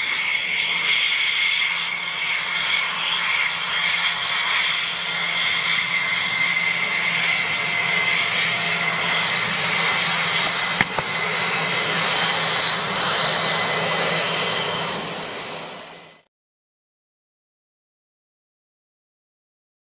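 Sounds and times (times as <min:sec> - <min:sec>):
jet engine rush with whine: 0:00.0 - 0:16.3.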